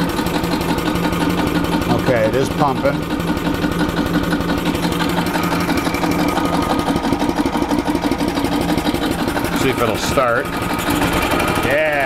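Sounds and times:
engine cranking on starter: 0.0s - 12.0s.

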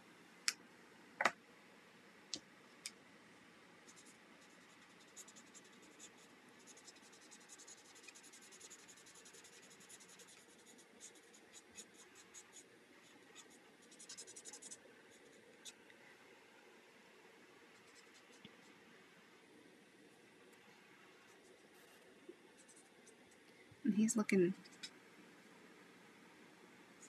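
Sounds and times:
marker tip scratching on paper: 3.9s - 12.6s, 13.4s - 14.8s.

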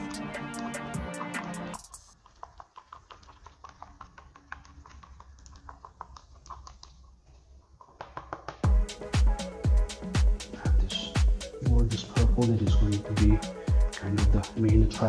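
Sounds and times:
small objects clicking and tapping: 1.8s - 7.1s.

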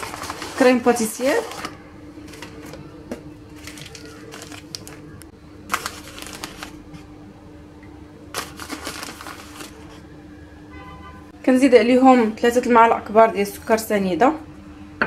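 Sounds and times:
paper packet crinkling: 0.0s - 2.8s, 3.5s - 7.0s, 8.3s - 10.0s.

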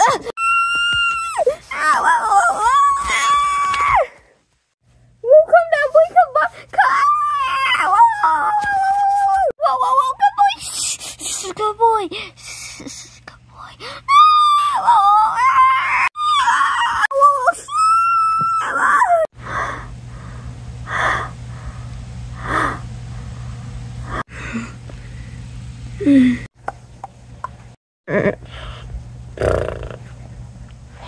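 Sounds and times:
steady low hum: 19.1s - 31.0s.

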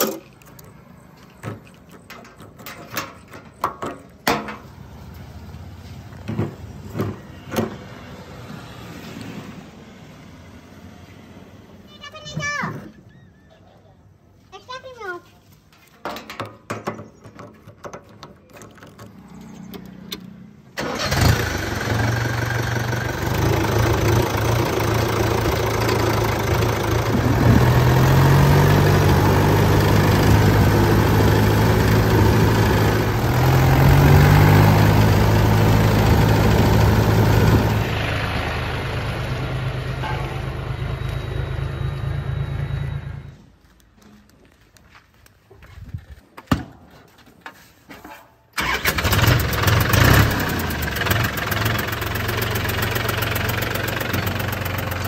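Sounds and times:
diesel engine starting and revving: 19.0s - 43.5s, 48.6s - 55.0s.

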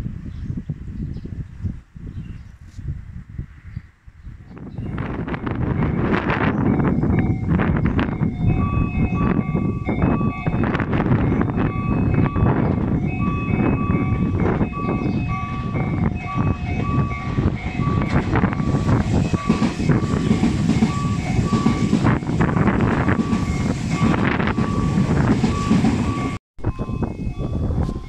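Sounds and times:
wind noise on microphone: 0.0s - 28.0s
electric train passing: 4.7s - 28.0s
level-crossing warning bells ringing: 4.8s - 28.0s.

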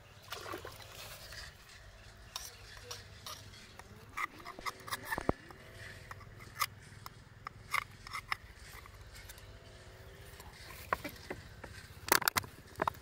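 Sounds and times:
metal rod scraping oyster shell: 1.2s - 9.5s.

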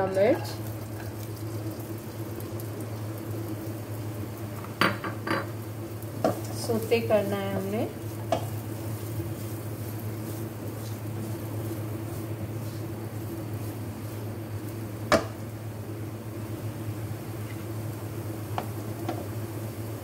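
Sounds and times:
low mechanical hum: 0.0s - 20.0s
capsicum stirred in wok: 5.5s - 15.6s
spatula knocking pan: 7.6s - 8.6s.

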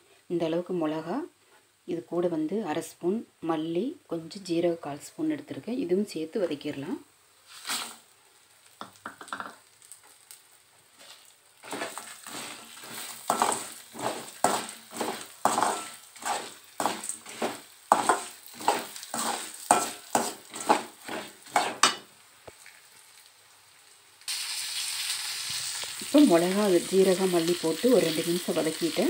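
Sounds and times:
metal spatula scraping a pan: 7.5s - 8.0s, 11.0s - 22.1s.

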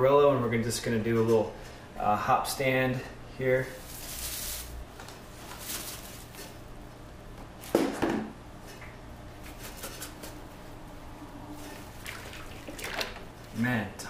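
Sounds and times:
hop cones rustling into bag: 3.7s - 6.7s.

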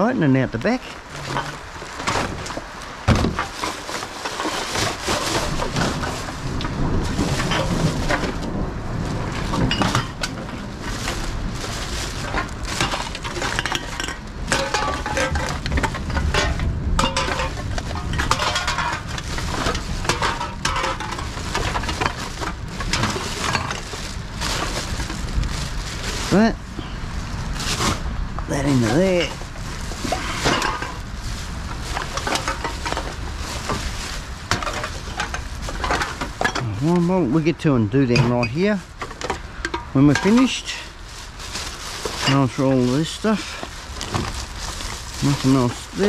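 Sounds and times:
plastic bag rustling: 0.0s - 46.0s
aluminium cans clattering: 9.4s - 10.6s, 12.2s - 25.3s, 30.0s - 31.0s, 31.9s - 33.9s, 34.5s - 36.7s.

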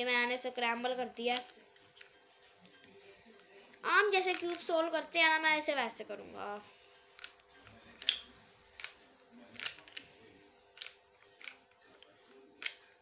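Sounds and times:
puzzle cube clicking: 1.3s - 2.1s, 4.2s - 4.7s, 8.0s - 8.2s, 9.6s - 10.1s, 10.8s - 11.6s, 12.6s - 12.8s.

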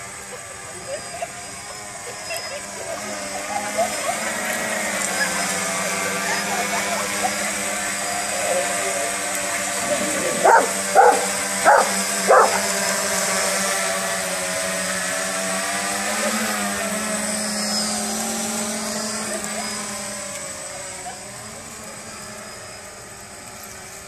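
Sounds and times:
quadcopter propellers whining: 0.0s - 24.0s
dog barking: 10.4s - 12.7s.

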